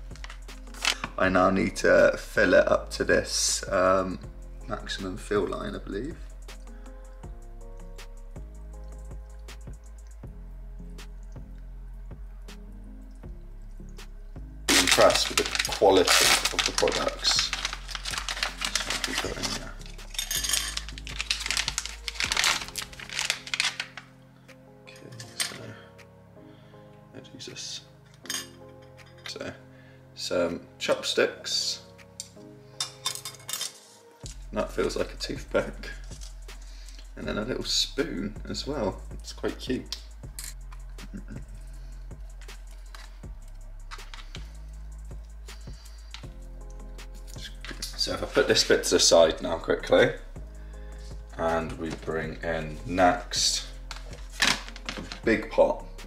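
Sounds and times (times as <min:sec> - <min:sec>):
background music with bass line: 0:00.0 - 0:27.0, 0:34.2 - 0:56.0
plastic and foil packets crinkling: 0:00.1 - 0:01.2, 0:14.7 - 0:24.1, 0:43.9 - 0:44.6, 0:53.5 - 0:55.6.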